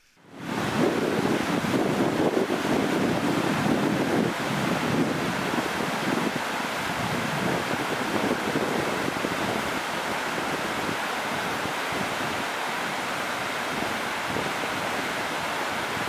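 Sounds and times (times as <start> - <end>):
river rapids rushing: 0.0 - 16.0
wind buffeting microphone: 0.3 - 16.0.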